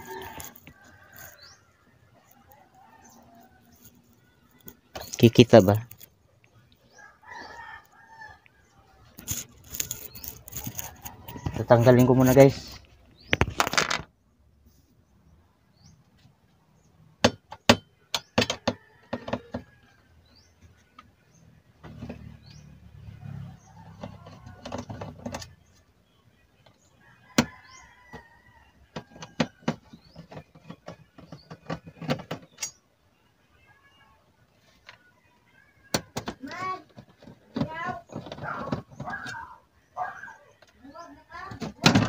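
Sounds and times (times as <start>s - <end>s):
dull handling noise: 35.9s - 39.5s.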